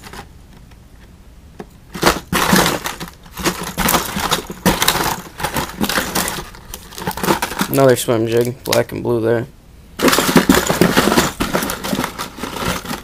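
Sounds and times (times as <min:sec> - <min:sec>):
plastic packs clattering: 0:00.0 - 0:00.3, 0:01.9 - 0:08.8, 0:10.0 - 0:13.0
rustling: 0:00.0 - 0:08.8, 0:10.0 - 0:13.0.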